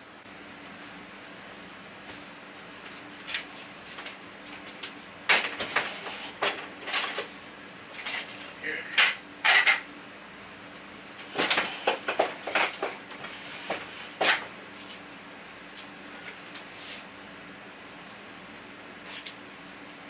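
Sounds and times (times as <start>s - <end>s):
metal pots and pans clattering: 8.1s - 9.8s.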